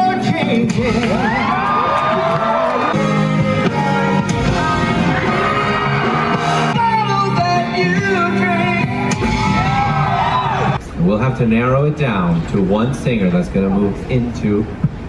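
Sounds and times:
backing music: 0.0 - 10.9
person singing into microphone: 2.9 - 9.1.

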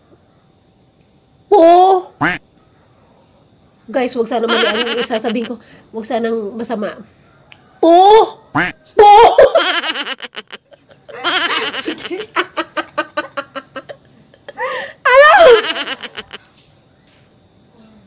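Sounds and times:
women laughing: 4.4 - 5.6, 9.0 - 16.5
woman shouting: 9.0 - 9.4, 15.1 - 15.7.

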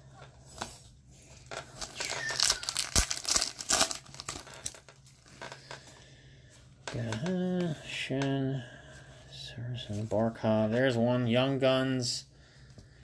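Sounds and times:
cards being handled: 0.2 - 5.8
wrapper tearing and crinkling: 1.4 - 5.6.

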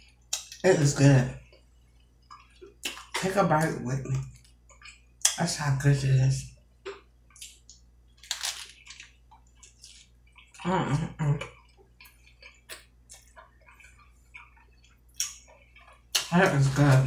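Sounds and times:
crunchy chewing: 6.8 - 17.0.

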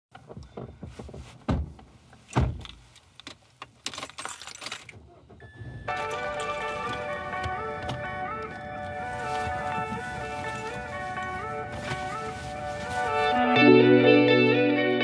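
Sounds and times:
heavy thumps: 0.2 - 2.8
metallic jingling: 3.8 - 13.2
music: 5.9 - 15.0.

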